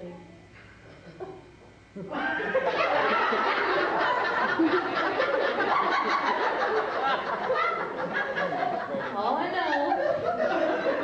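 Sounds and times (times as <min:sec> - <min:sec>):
audience laughing: 0:02.0 - 0:11.0.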